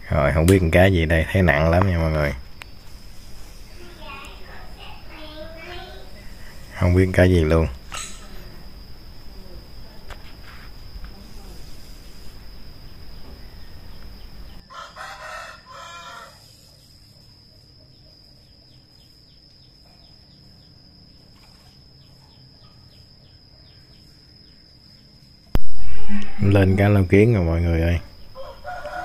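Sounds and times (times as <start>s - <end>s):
rooster crowing: 14.6s - 16.6s, 25.7s - 27.1s, 28.2s - 29.0s.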